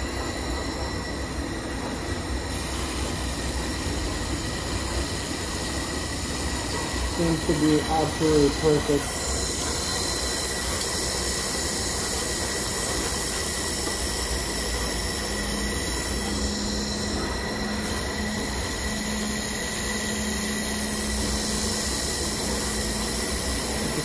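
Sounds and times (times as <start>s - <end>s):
laser welder hiss and whine: 0.0s - 24.0s.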